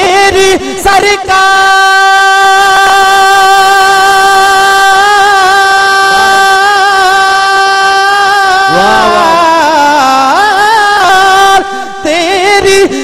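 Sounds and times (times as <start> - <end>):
man singing: 0.0 - 13.0
steady drone: 8.7 - 9.8.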